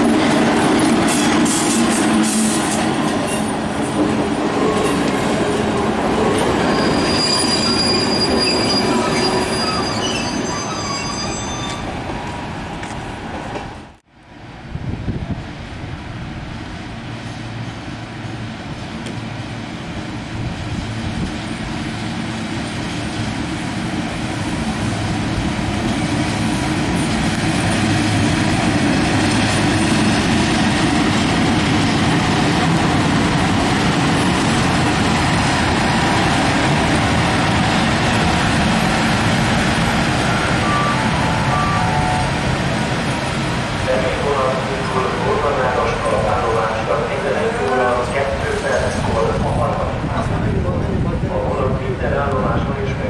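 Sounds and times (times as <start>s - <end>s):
electric locomotives passing: 0.0s - 53.0s
short high beeps: 40.3s - 42.3s.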